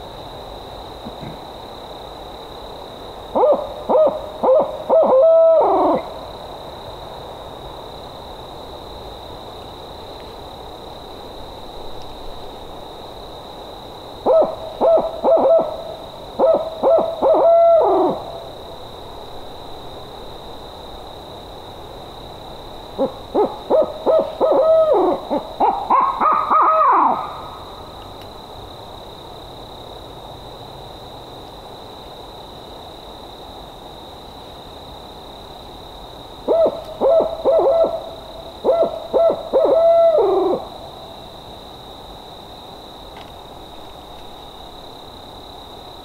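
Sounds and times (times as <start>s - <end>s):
person imitating owl hoots: 38.7s - 40.7s.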